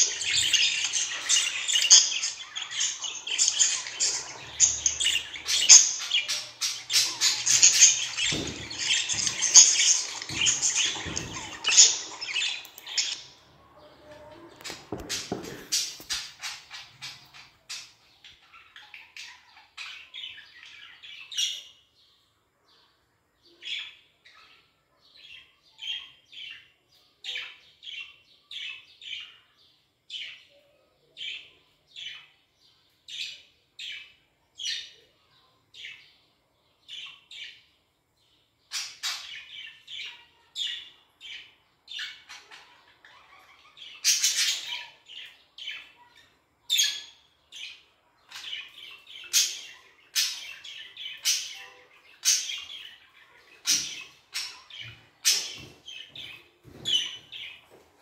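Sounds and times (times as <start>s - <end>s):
budgerigars chirping: 0.0s - 13.3s.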